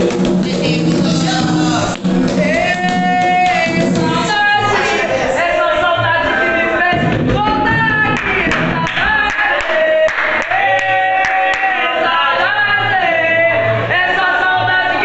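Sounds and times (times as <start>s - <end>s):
group singing a chant: 0.0s - 15.0s
hand drums: 6.9s - 9.2s
handclaps: 8.0s - 11.8s.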